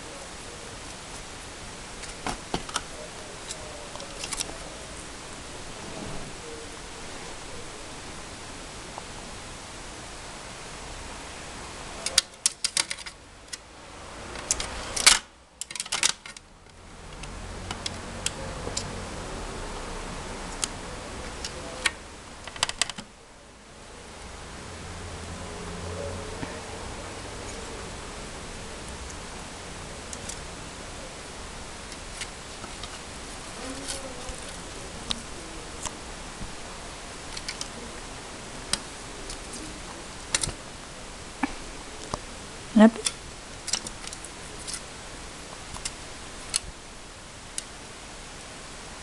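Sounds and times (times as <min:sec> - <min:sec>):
steady hiss: 0:00.0 - 0:49.0
plastic toy clicking: 0:14.4 - 0:16.4.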